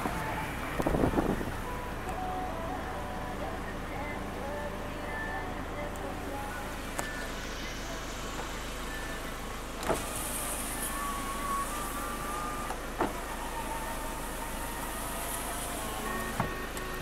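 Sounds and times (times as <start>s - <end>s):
window motor whining: 0.0s - 2.3s, 6.6s - 17.0s.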